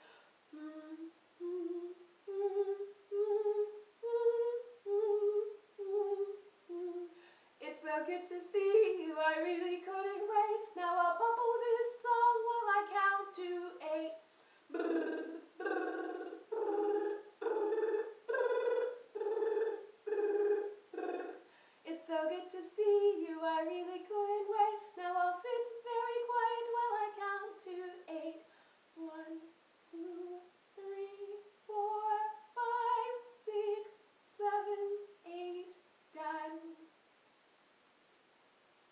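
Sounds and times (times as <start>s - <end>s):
woman humming a tune: 0.0s - 7.2s, 14.7s - 21.4s.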